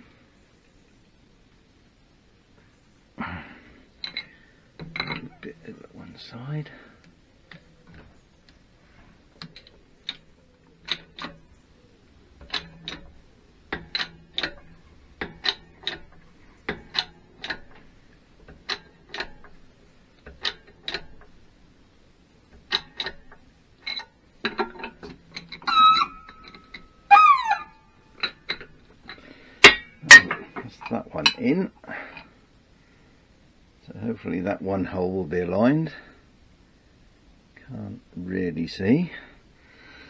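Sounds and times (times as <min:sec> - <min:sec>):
hydraulic press clicking: 0:09.4 - 0:11.5, 0:12.3 - 0:21.5, 0:22.5 - 0:31.4
short squeaks: 0:25.5 - 0:27.8.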